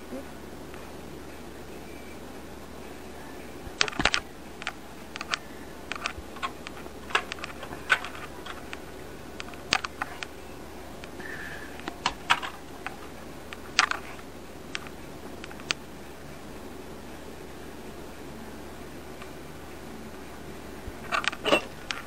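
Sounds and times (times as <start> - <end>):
steady low hum: 0.0 - 22.0
sharp clicks and taps: 3.7 - 10.4.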